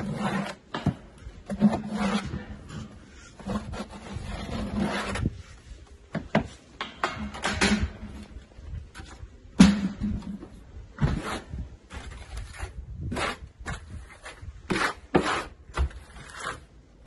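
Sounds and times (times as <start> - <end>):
trowel scraping mortar: 0.0 - 5.7, 11.0 - 16.8.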